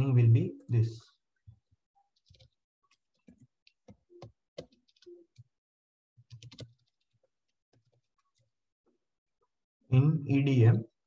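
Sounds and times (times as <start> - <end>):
computer keyboard typing: 2.1 - 5.5, 6.2 - 8.5.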